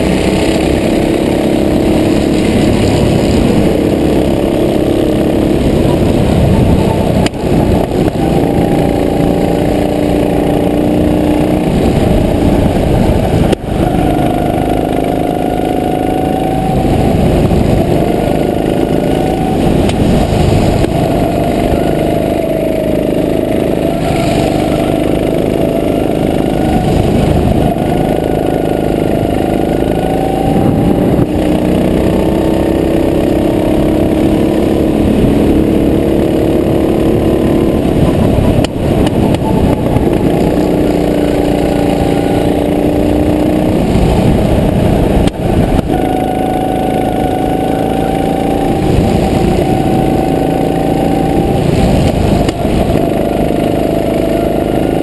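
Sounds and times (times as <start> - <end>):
go-kart engine revving: 0.0 - 55.0.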